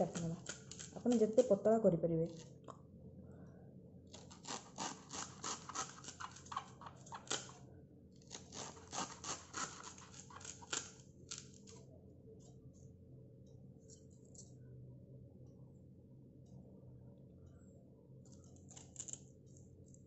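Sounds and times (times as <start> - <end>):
knife slicing banana stem: 4.2 - 7.6, 8.3 - 11.5.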